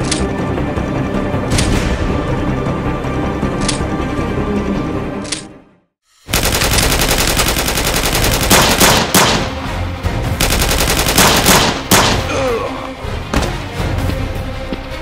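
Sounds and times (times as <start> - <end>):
background music: 0.0 - 15.0
rapid automatic gunfire: 6.3 - 9.6, 10.4 - 12.2.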